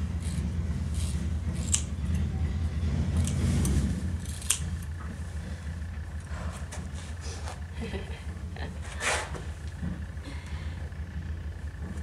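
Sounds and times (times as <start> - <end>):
scissors snipping through hair: 0.2 - 2.0, 3.2 - 4.9.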